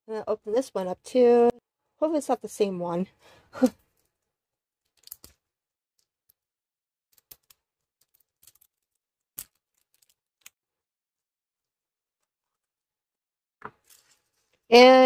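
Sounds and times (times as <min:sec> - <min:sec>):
plastic capsule clicking and snapping: 0:04.9 - 0:05.4.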